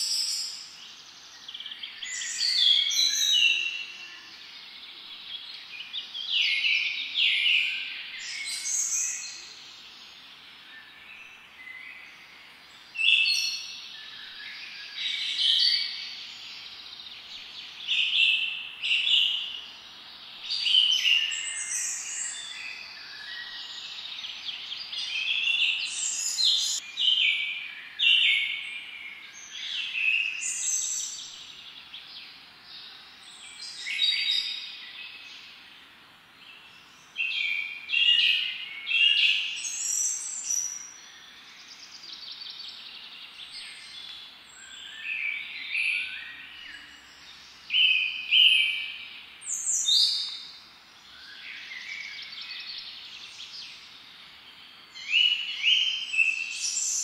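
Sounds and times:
birds chirping and trilling: 0.0 - 57.0.

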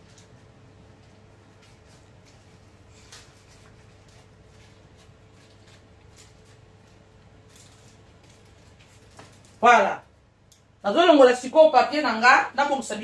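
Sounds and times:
paper rustling: 0.0 - 9.7
low steady hum: 0.0 - 13.0.

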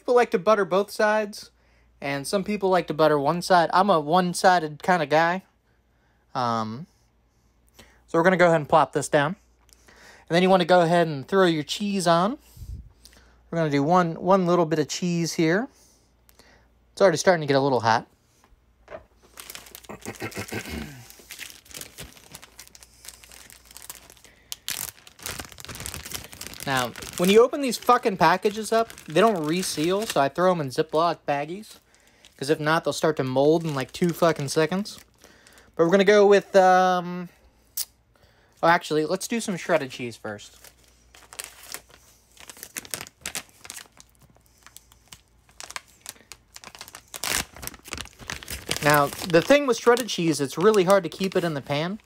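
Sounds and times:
plastic packaging crinkling: 18.8 - 36.0, 38.8 - 52.0.

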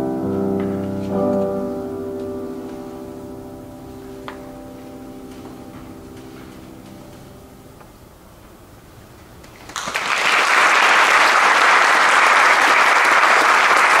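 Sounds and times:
grand piano chord: 0.0 - 8.9
audience applause: 9.4 - 14.0.

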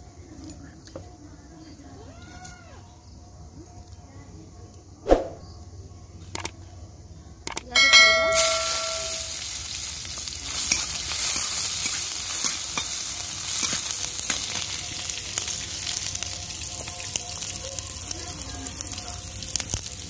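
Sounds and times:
metal pan ringing: 7.7 - 9.8
onions sizzling in hot oil: 7.9 - 20.0.

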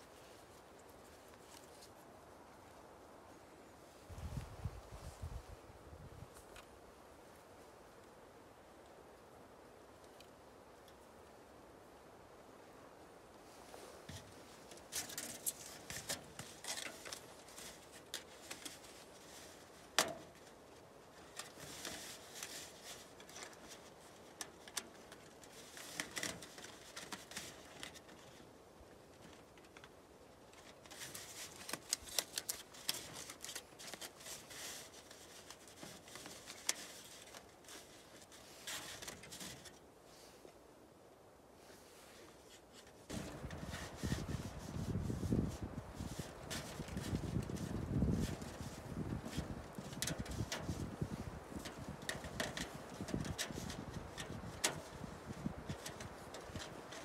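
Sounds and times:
metal pipe crinkling and rattling: 14.1 - 28.4, 29.1 - 39.8, 42.5 - 57.0.

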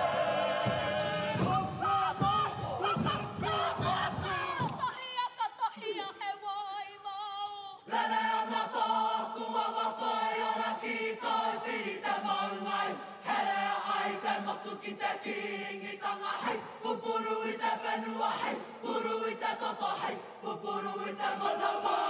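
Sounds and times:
group chanting in unison: 0.0 - 5.0, 7.8 - 22.0
single high voice singing: 0.0 - 22.0.

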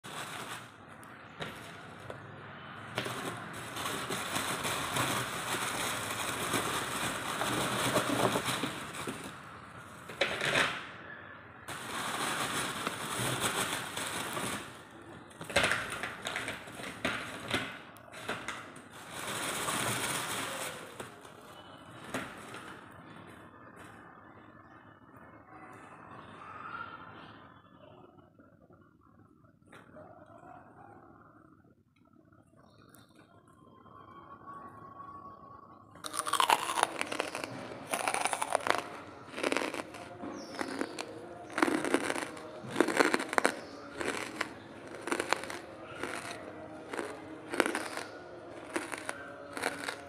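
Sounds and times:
plastic crinkling and rustling: 0.0 - 2.2, 2.9 - 10.7, 11.7 - 22.9, 36.1 - 50.0.

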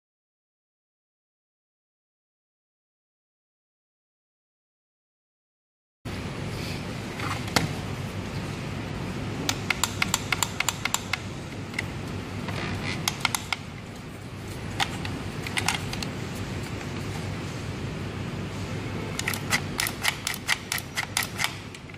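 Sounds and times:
plastic clicks and rattles: 14.8 - 16.1.

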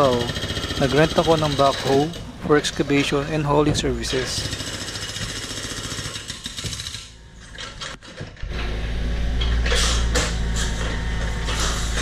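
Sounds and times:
hydraulic breaker hammering: 0.0 - 12.0
diesel engine droning: 8.5 - 12.0.

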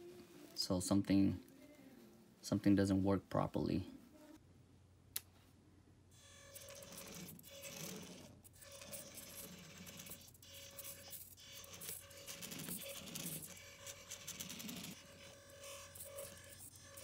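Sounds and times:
toy car motor whirring: 6.2 - 17.0.

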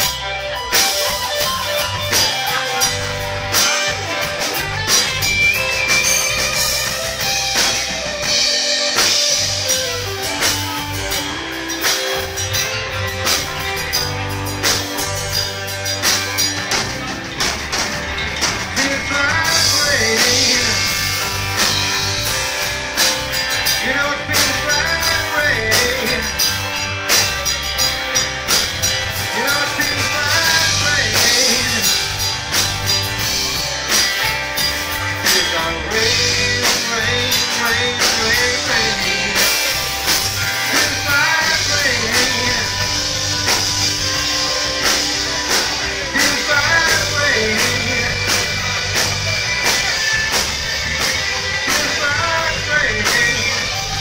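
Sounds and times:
rock band playing: 0.0 - 54.0
man singing: 18.7 - 21.4, 23.6 - 27.4, 29.2 - 32.3, 35.1 - 43.7, 44.4 - 49.2, 51.6 - 54.0.

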